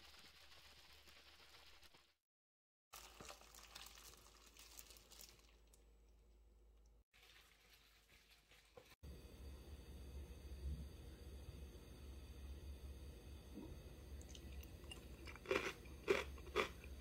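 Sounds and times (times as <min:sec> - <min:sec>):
wet squishing and crinkling: 0:03.0 - 0:09.0.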